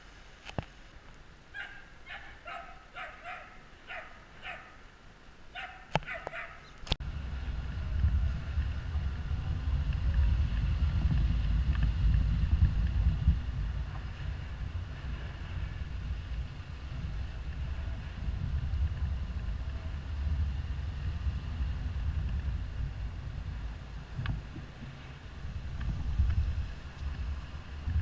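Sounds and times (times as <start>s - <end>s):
dog barking: 1.5s - 4.8s, 5.5s - 6.7s
car road noise: 5.5s - 28.0s
wind buffeting microphone: 5.6s - 28.0s.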